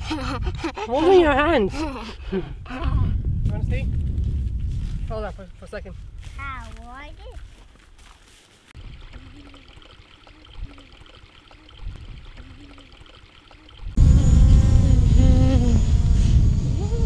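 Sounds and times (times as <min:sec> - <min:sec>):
wind buffeting microphone: 0:00.0 - 0:07.6, 0:13.8 - 0:17.0.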